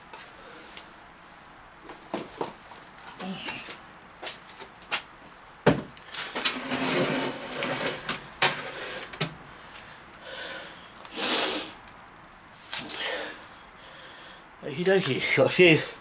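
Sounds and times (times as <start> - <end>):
metal scraping: 6.2 - 9.1.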